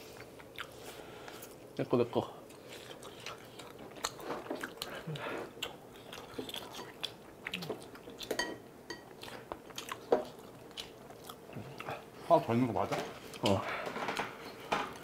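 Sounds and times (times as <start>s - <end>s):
chewing and mouth smacks: 0.1s - 0.8s, 2.5s - 8.4s, 9.1s - 12.0s.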